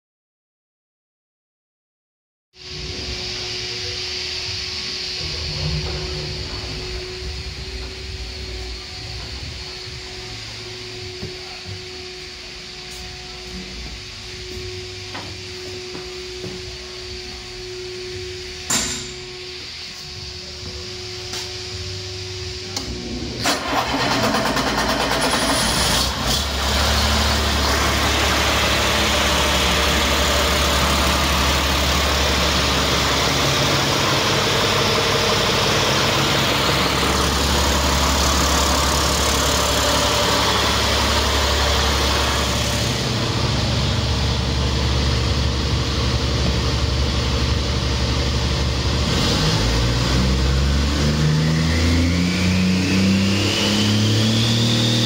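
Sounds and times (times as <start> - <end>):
engine revving: 22.6 - 55.0
diesel engine starting and idling: 22.7 - 55.0.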